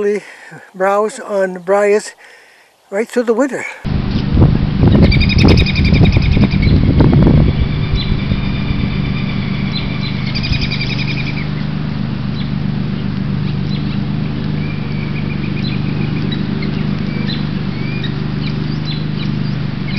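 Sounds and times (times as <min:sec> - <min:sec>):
songbirds chirping: 0:00.0 - 0:03.9, 0:04.9 - 0:19.9
steady low hum: 0:03.8 - 0:19.9
bird trill: 0:04.9 - 0:19.9.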